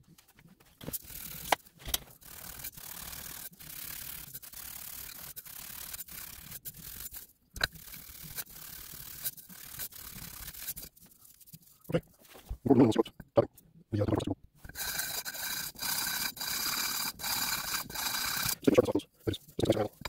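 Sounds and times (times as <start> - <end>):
metal plate rasping on abrasive: 14.7 - 18.8.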